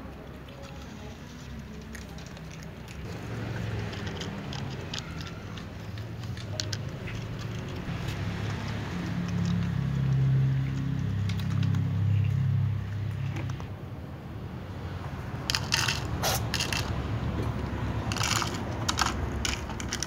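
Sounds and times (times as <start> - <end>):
cats crunching dry kibble: 0.0 - 13.6, 15.3 - 20.0
plastic cups clicking: 0.5 - 7.9, 10.8 - 12.0, 15.4 - 20.0.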